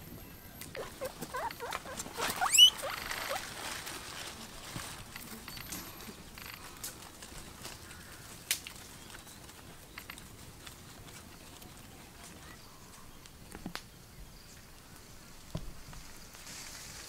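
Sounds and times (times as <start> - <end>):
guinea pig squeaking: 0.7 - 3.5
soft rustling: 0.7 - 13.8, 14.6 - 17.0.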